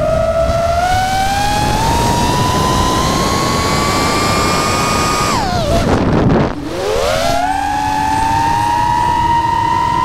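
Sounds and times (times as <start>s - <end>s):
drone propellers whining: 0.0s - 10.0s
wind rushing: 0.8s - 8.7s.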